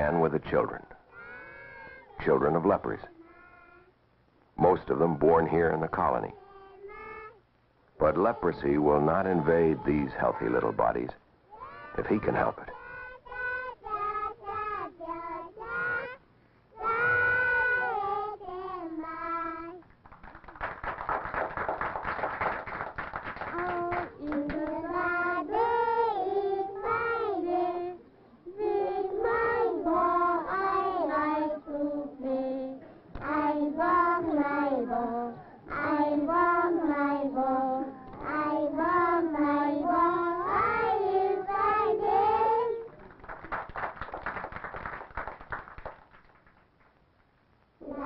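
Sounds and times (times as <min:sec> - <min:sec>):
children singing: 0:11.5 - 0:16.2, 0:16.8 - 0:19.8, 0:23.6 - 0:42.9.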